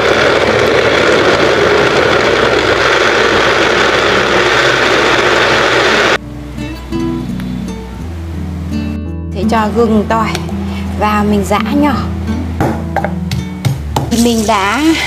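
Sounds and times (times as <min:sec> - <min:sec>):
blender whirring: 0:00.0 - 0:06.2.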